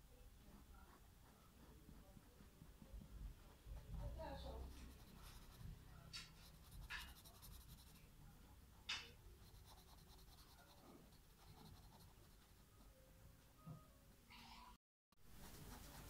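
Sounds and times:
marker scratching on paper: 0.4 - 8.1, 8.8 - 12.7, 15.3 - 16.0.

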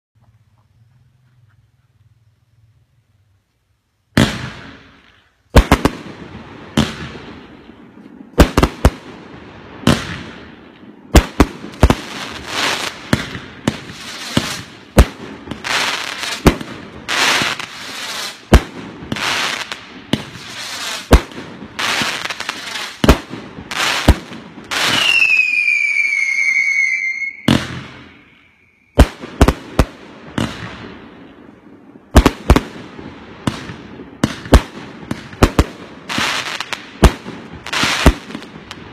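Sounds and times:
firework aerial bursts: 4.1 - 38.9
falling firework whistle: 24.7 - 29.0.

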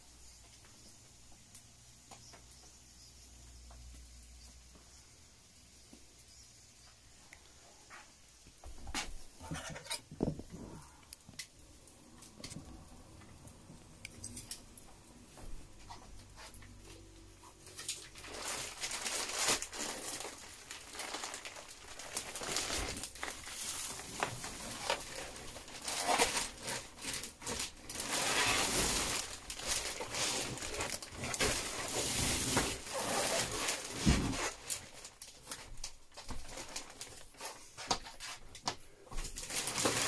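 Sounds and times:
plastic wrapping rustling: 15.4 - 40.0.

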